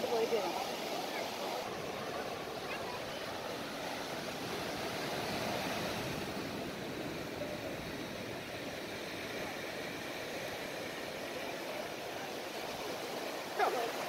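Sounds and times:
surf breaking on beach: 0:00.0 - 0:14.0.

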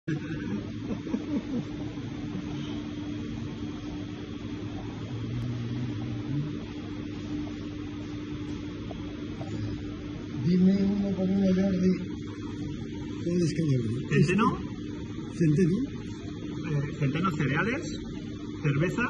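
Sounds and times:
low electrical hum: 0:00.0 - 0:19.0.

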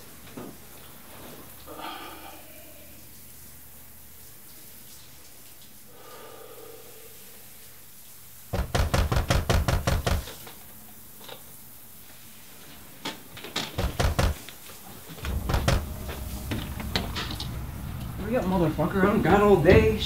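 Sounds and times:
knocking on a door: 0:08.5 - 0:10.3, 0:13.8 - 0:14.4, 0:15.2 - 0:17.6.

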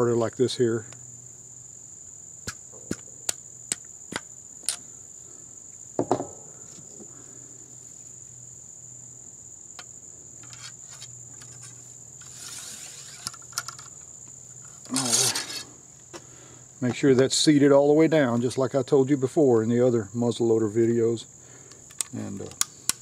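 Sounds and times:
insect drone: 0:00.0 - 0:23.0
ramrod scraping down barrel: 0:10.4 - 0:15.8.

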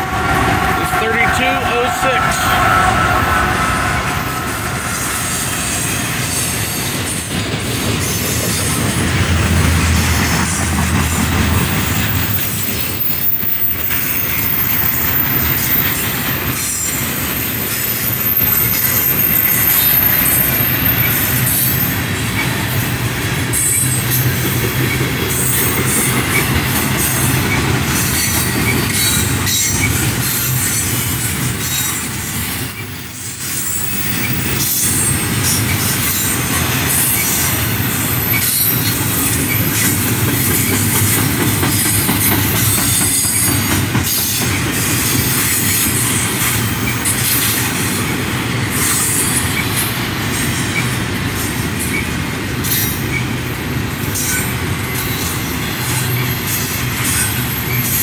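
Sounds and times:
high-pitched wheel squeal: 0:00.0 - 0:07.3, 0:11.8 - 0:22.0, 0:32.7 - 0:36.3
freight train rumbling past: 0:00.0 - 0:58.0.

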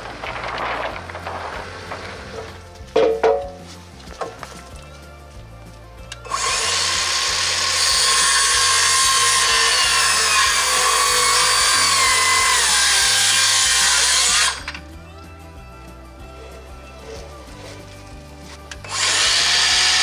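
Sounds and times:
circular saw cutting wood: 0:06.2 - 0:14.9, 0:18.5 - 0:20.0.

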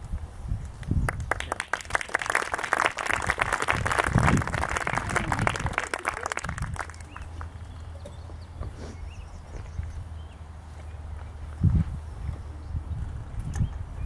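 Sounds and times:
audience clapping: 0:00.8 - 0:07.6.

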